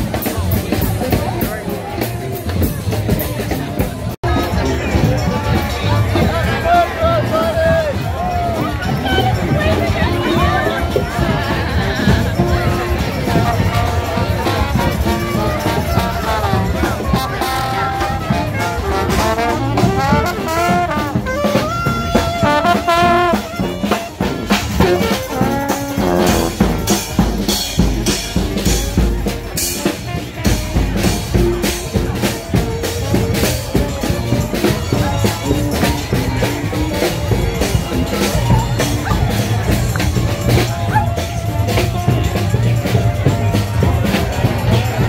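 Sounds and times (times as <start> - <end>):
drums: 0.0 - 45.0
trombone: 0.0 - 45.0
trumpet: 0.0 - 45.0.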